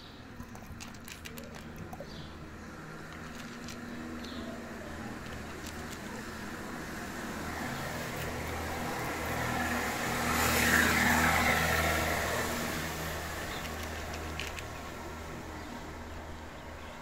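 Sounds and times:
vehicle passing by: 0:00.4 - 0:16.8.

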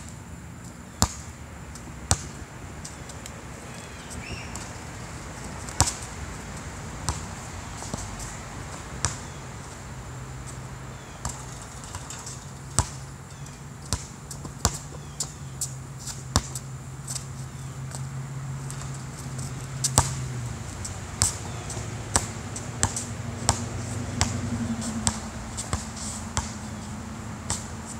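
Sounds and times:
basketball bouncing on asphalt: 0:00.9 - 0:27.9
basketball hitting hoop: 0:25.0 - 0:26.6.

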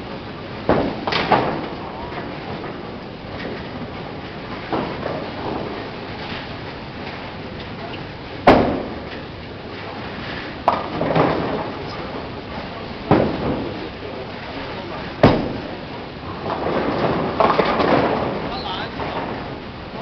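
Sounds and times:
bowling pins crashing: 0:00.7 - 0:05.8, 0:08.4 - 0:09.2, 0:10.6 - 0:12.3, 0:13.0 - 0:14.5, 0:15.1 - 0:20.0
machinery hum: 0:18.2 - 0:20.0.

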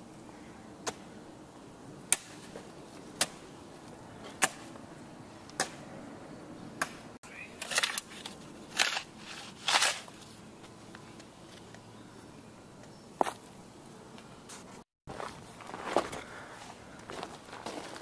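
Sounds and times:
footsteps on forest ground: 0:14.5 - 0:18.0.

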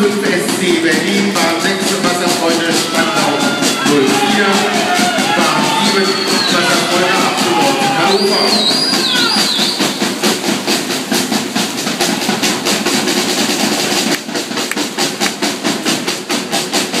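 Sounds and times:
rhythmic clapping: 0:00.0 - 0:17.0
crowd cheering: 0:00.9 - 0:10.9.

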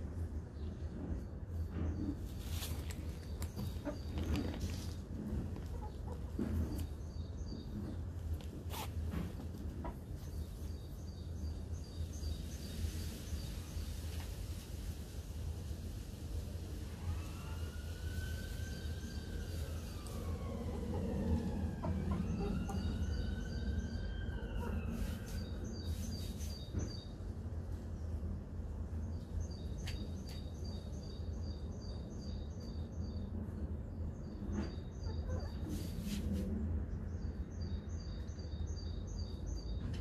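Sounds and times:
emergency siren wailing: 0:17.0 - 0:25.5.

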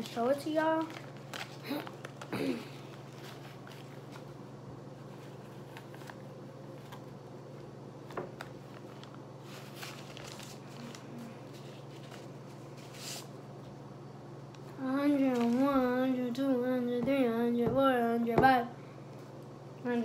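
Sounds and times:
steady low hum: 0:00.0 - 0:20.0
paper bills crinkling: 0:00.1 - 0:04.4, 0:08.4 - 0:13.3.

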